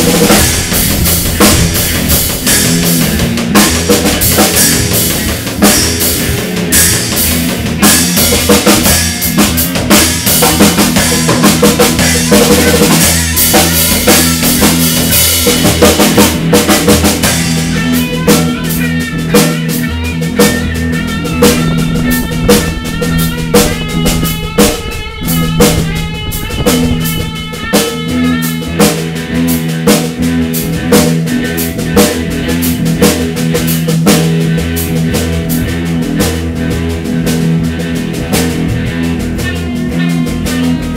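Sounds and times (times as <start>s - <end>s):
drum hits: 0.0s - 29.2s
bass notes: 0.0s - 40.9s
cymbals washing: 0.0s - 40.9s
electric guitar lines: 0.0s - 40.9s
rock band playing: 0.0s - 40.9s.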